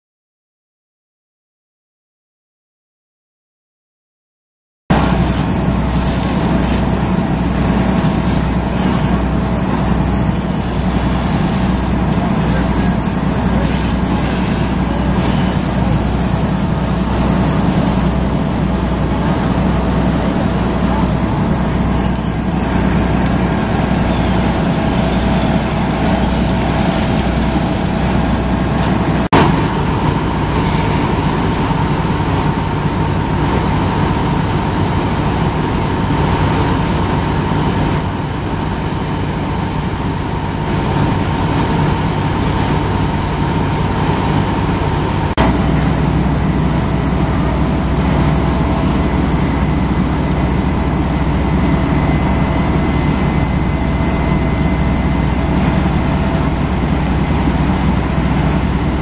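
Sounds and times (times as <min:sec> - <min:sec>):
faint steady whine: 0:04.9 - 0:59.0
fire engines running: 0:04.9 - 0:59.0.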